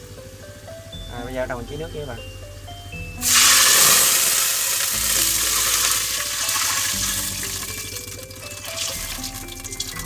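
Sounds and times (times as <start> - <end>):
background music: 0.0 - 10.0
water sizzling in hot oil: 3.2 - 10.0.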